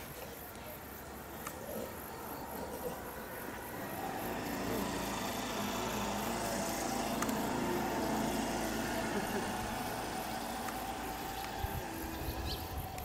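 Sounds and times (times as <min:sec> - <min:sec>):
insects chirring: 0:00.0 - 0:13.0
motor engine running: 0:03.6 - 0:13.0.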